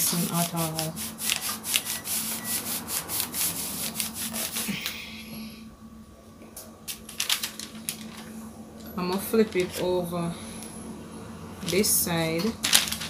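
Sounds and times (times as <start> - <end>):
heat press scraping on paper: 0.0 - 4.8.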